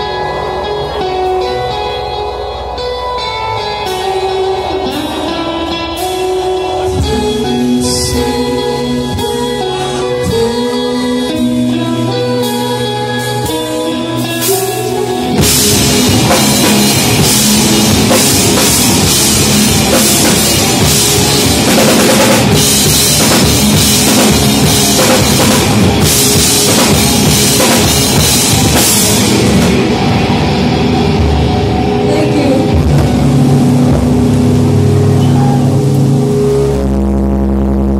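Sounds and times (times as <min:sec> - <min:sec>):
live rock band playing: 0:00.0 - 0:37.9
ringing electric guitar: 0:00.0 - 0:37.9
pounding drums: 0:15.4 - 0:31.6.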